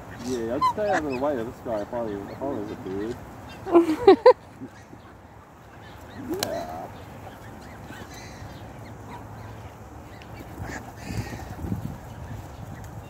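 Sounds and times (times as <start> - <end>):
waterfowl calls: 0.0 - 3.9
birds pecking: 0.0 - 13.0.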